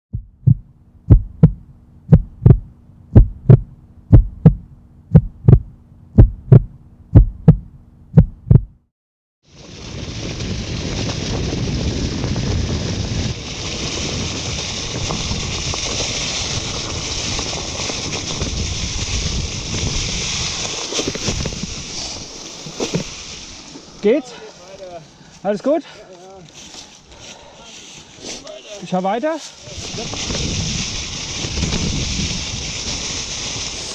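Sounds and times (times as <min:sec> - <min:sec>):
heartbeat thumps: 0:00.1 - 0:08.9
low steady hum: 0:00.2 - 0:08.8
bike tyre rumble: 0:09.4 - 0:33.9
wind rush: 0:09.5 - 0:24.2, 0:29.6 - 0:33.9.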